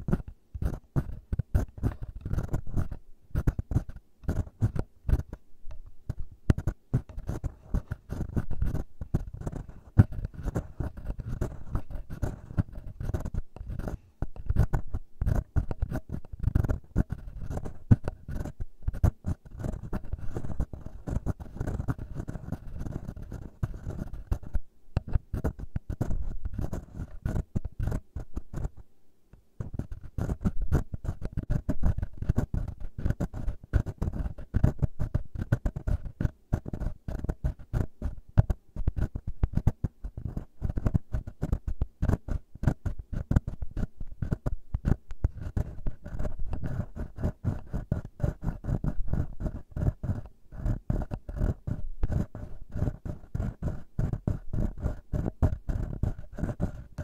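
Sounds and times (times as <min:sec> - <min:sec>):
fingers scratching microphone: 0:00.0 - 0:28.8, 0:29.6 - 0:57.0.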